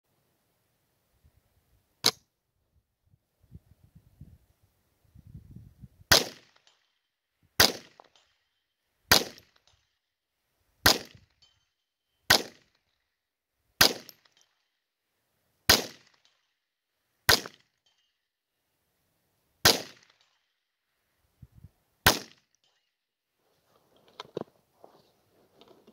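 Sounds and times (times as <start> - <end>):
rifle shots: 6.1 - 6.6, 7.6 - 8.0, 9.1 - 9.4, 10.8 - 11.2, 12.3 - 12.6, 13.8 - 14.2, 15.7 - 16.1, 17.3 - 17.6, 19.6 - 20.2, 22.0 - 22.4.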